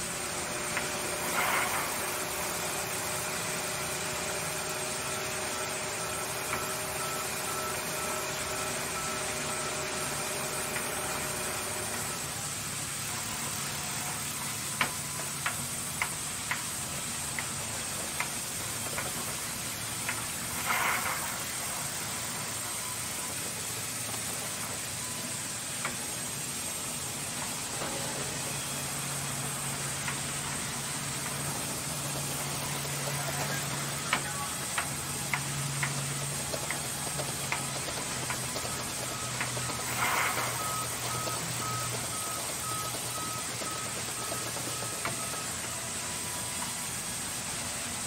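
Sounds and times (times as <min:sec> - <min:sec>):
band saw cutting a log: 0:00.0 - 0:12.4.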